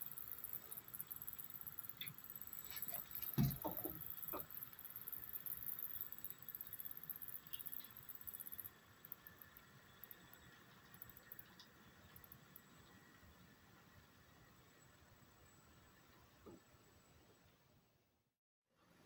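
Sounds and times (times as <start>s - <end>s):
thump: 3.3s - 4.0s.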